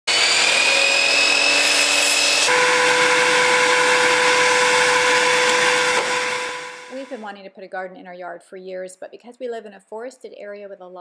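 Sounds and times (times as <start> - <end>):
miter saw whining: 0.1 - 7.2.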